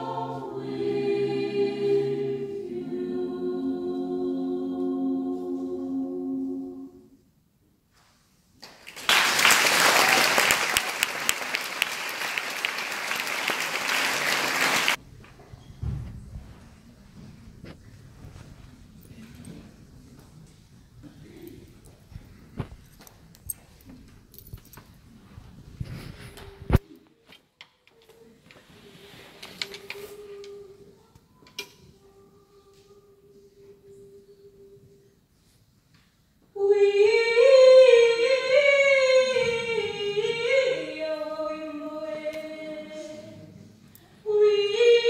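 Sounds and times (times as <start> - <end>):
audience applauding: 8.6 - 15.0.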